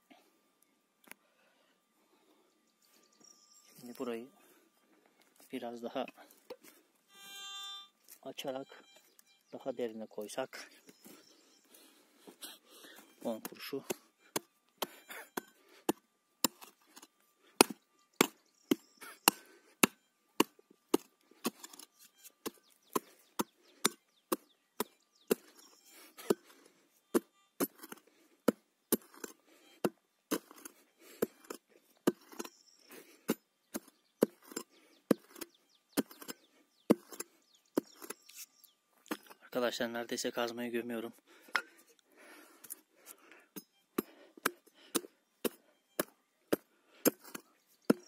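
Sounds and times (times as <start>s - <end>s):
pick-mattock chopping into soil: 12.8s - 39.5s, 43.5s - 48.0s.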